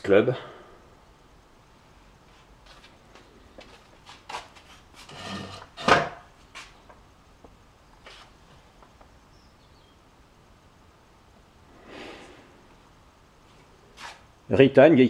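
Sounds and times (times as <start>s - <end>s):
short rustle: 13.4s - 14.3s.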